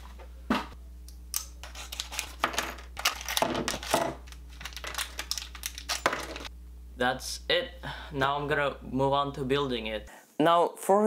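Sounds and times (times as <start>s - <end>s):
electronic parts clicking and clattering: 1.7s - 6.5s
plastic packaging crinkling: 1.7s - 6.5s.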